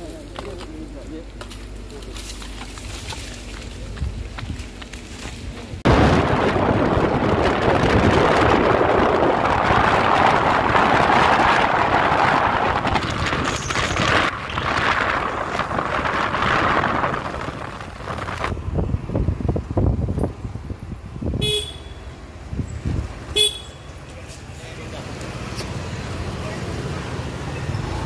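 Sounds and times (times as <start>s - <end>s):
road noise: 0.0s - 28.0s
wind rushing over microphone: 5.4s - 23.3s.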